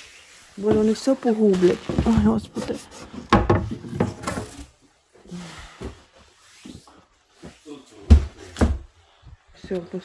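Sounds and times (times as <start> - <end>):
board scraping and knocking: 1.9 - 4.7.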